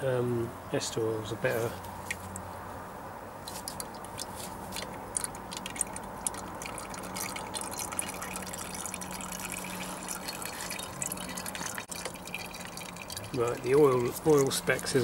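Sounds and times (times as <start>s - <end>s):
oil dribbling into a plastic jug: 3.6s - 15.0s.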